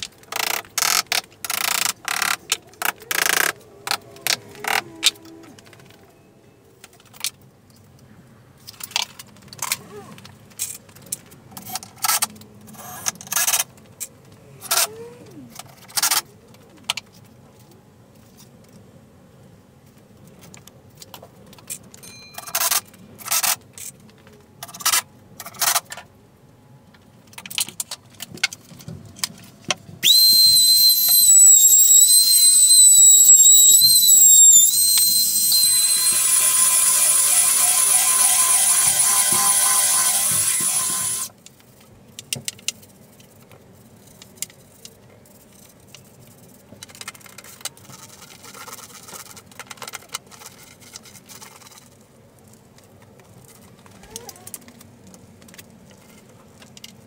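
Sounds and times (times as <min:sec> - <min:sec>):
cordless drill driving screws: 0:30.0 - 0:41.3
electric sander buzzing: 0:30.0 - 0:41.3.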